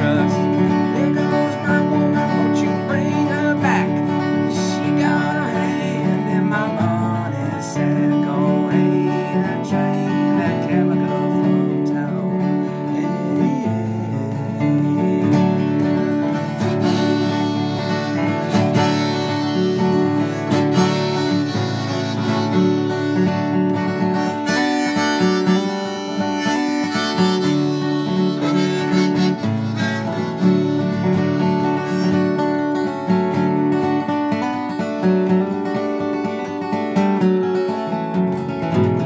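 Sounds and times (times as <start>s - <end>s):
harmonica: 0.0s - 36.8s
picked acoustic guitar: 0.0s - 39.0s.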